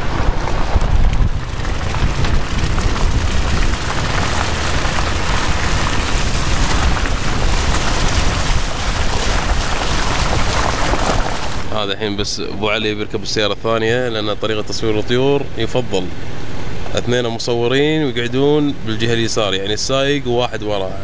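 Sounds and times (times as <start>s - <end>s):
sand and grit thrown off tyre: 0.0s - 11.7s
wind buffeting microphone: 0.0s - 11.7s
tyres on wet dirt track: 0.0s - 21.0s.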